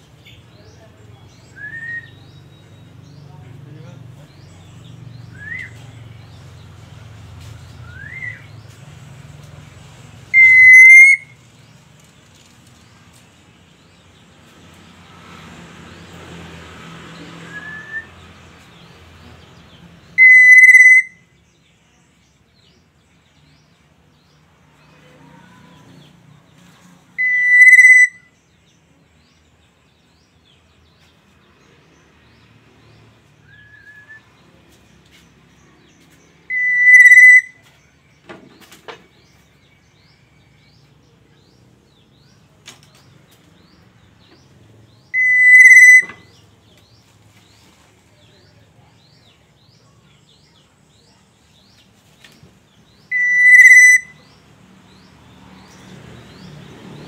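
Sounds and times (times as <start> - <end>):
oriole whistled calls: 1.4 - 2.4, 5.2 - 6.0, 7.8 - 8.6, 10.3 - 11.4, 17.4 - 18.2, 20.1 - 21.4, 27.2 - 28.4, 33.4 - 34.3, 36.4 - 37.8, 45.0 - 46.5, 52.9 - 55.1.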